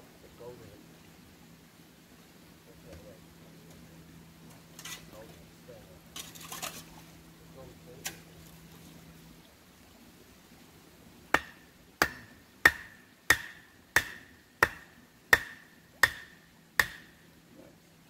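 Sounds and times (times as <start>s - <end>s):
axe chopping wood: 11.3s - 17.2s.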